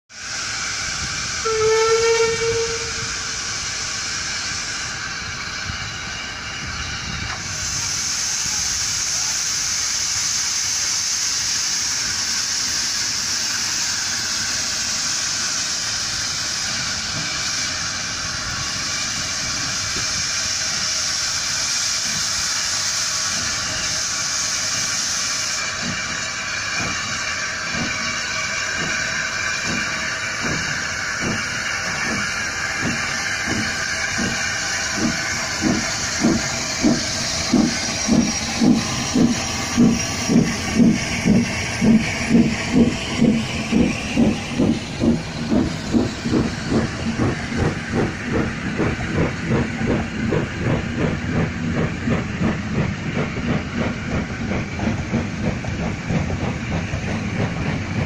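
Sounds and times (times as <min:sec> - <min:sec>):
steam hissing: 0:00.1 - 0:58.0
steam locomotive whistle: 0:01.4 - 0:03.6.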